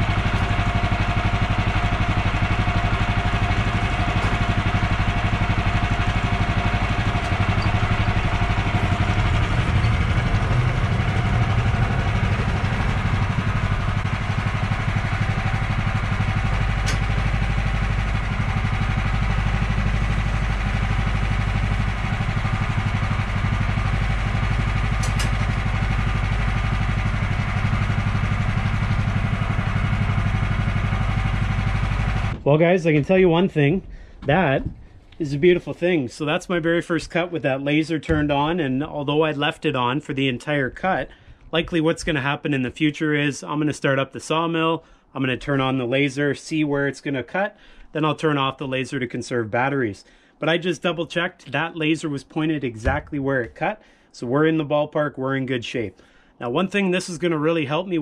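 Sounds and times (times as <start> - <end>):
gas engine running: 0.0 - 32.4.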